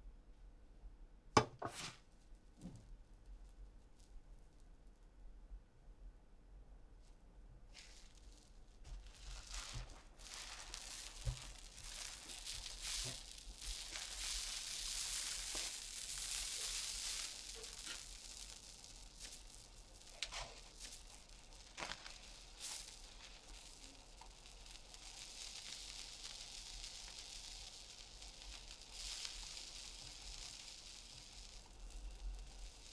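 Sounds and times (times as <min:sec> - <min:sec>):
egg hissing and rustling: 0:07.7 - 0:32.9.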